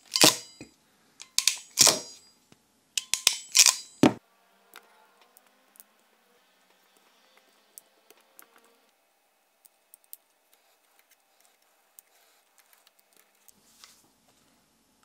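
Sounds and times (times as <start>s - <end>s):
crimping tool metallic clicks: 0.0s - 2.2s, 3.0s - 4.2s.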